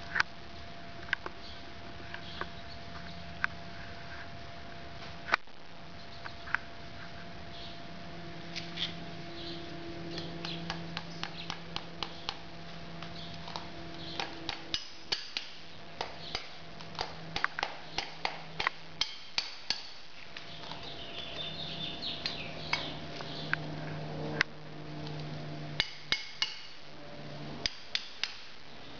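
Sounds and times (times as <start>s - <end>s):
hammer tapping nails: 14.2s - 20.0s, 27.6s - 28.4s.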